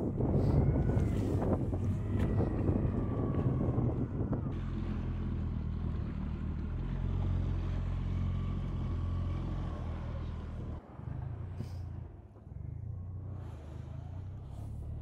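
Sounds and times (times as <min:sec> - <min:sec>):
wind on microphone: 0:00.0 - 0:04.6
outboard motor droning: 0:00.0 - 0:15.0.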